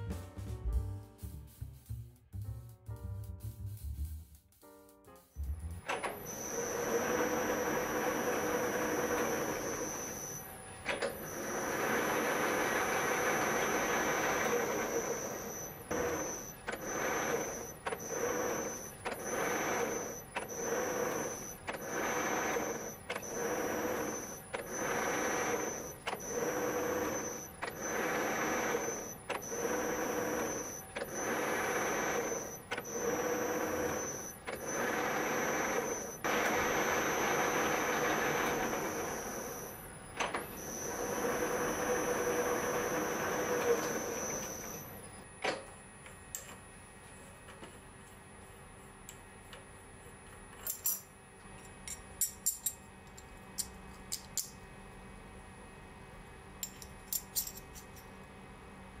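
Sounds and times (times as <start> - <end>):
milling machine spindle whine: 5.4 - 46.5.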